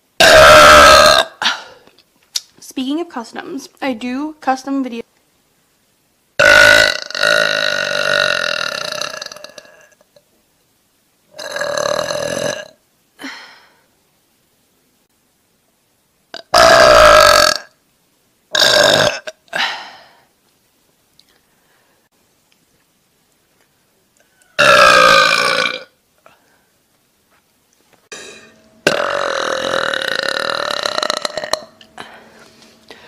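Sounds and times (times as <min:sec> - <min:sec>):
woman belching: 0:00.2 - 0:01.8, 0:06.4 - 0:10.1, 0:11.4 - 0:12.8, 0:16.3 - 0:17.7, 0:18.5 - 0:19.7, 0:24.5 - 0:25.9, 0:28.1 - 0:32.0.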